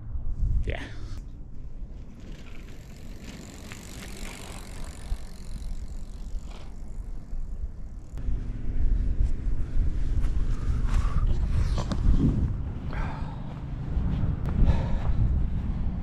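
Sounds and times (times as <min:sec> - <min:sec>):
wind rumble on microphone: 0:00.0 - 0:02.7, 0:06.4 - 0:16.0
bicycle riding past: 0:01.2 - 0:14.4.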